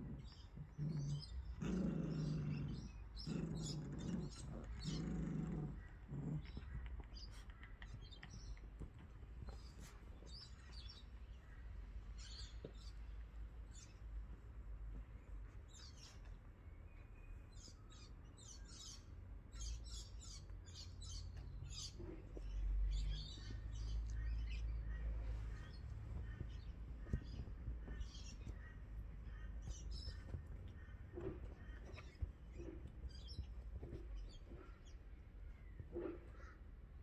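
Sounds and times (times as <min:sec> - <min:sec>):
small birds chirping: 0:00.0 - 0:37.0
steady low rumble: 0:21.3 - 0:37.0.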